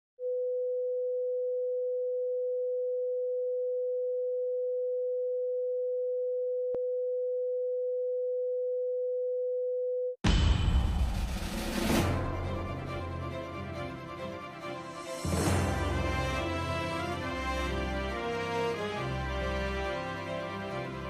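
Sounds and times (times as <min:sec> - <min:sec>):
music: 0:10.3 - 0:21.0.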